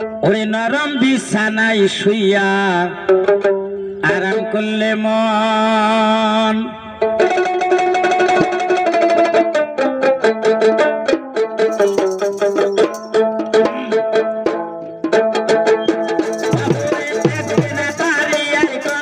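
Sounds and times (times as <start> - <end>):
plucked string folk melody: 7.0 - 19.0.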